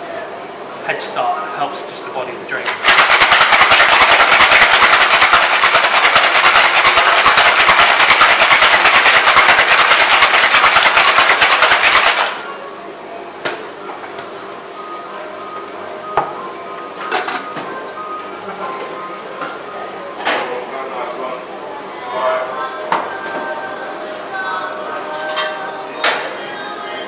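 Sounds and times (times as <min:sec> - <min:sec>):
ice rattling in cocktail shaker: 0:02.8 - 0:12.4.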